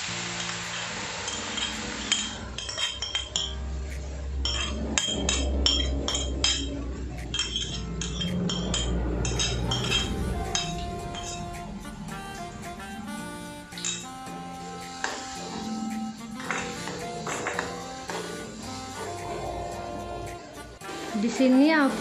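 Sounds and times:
hot oil sizzling: 0:00.0 - 0:22.0
metal spoon clinking on wok: 0:01.2 - 0:03.7, 0:04.4 - 0:11.6, 0:13.8 - 0:14.0.

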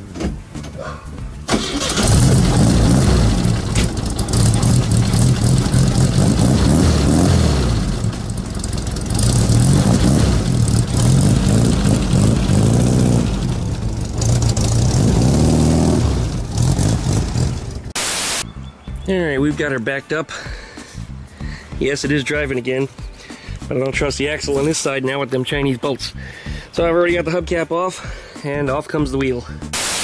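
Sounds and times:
car engine revving: 0:01.5 - 0:18.0.

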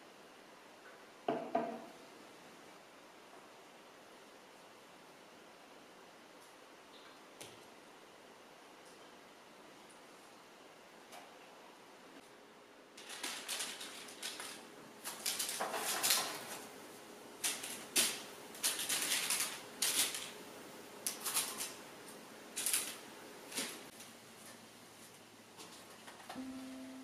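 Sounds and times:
crackles of cookies and paper: 0:12.9 - 0:26.3.

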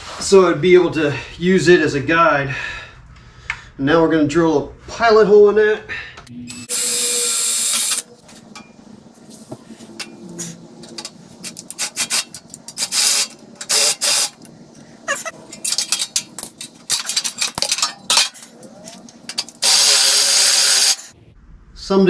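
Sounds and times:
cordless drill boring metal: 0:06.6 - 0:08.1, 0:11.8 - 0:14.4, 0:19.3 - 0:21.1
handling clicks and knocks: 0:15.4 - 0:19.6.

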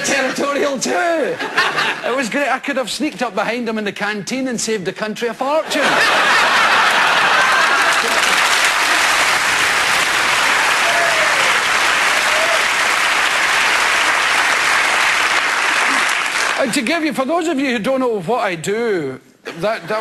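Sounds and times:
audience laughing and applauding: 0:00.0 - 0:02.2, 0:05.7 - 0:16.9.

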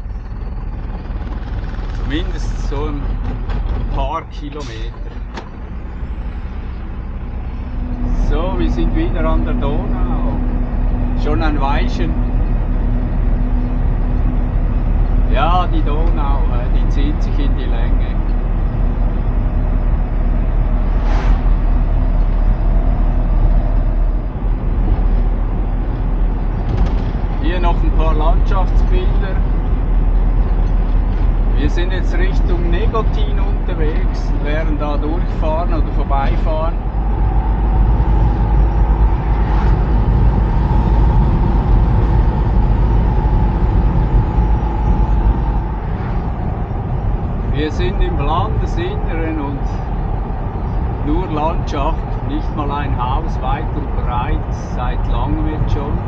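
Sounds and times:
truck engine and road rumble: 0:00.0 - 0:56.0
wind noise: 0:00.0 - 0:56.0
brief rushing sound: 0:20.7 - 0:24.0, 0:36.1 - 0:47.7.

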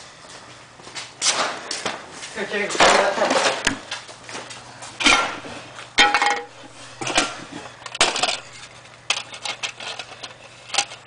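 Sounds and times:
hard objects clinking in plastic tray: 0:08.0 - 0:11.0.

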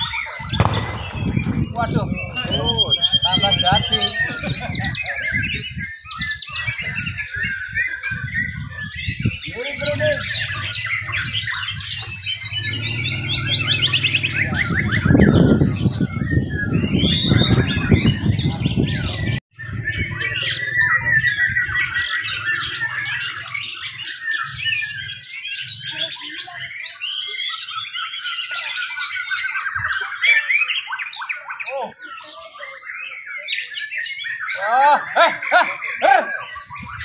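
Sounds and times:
birds singing with rapid trills: 0:00.0 - 0:37.0
low rumble: 0:00.6 - 0:02.8.

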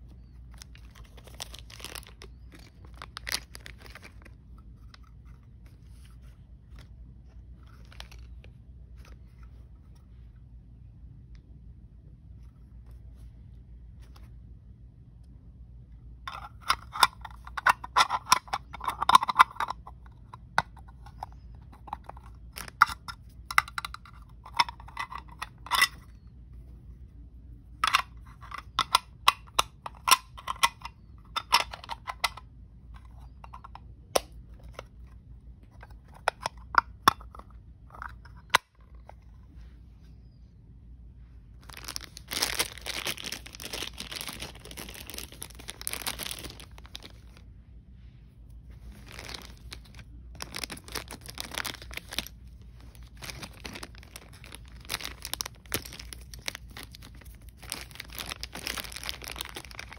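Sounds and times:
plastic wrapping crinkling: 0:00.1 - 0:09.4, 0:16.3 - 0:26.2, 0:41.6 - 0:47.4, 0:48.7 - 0:59.9.

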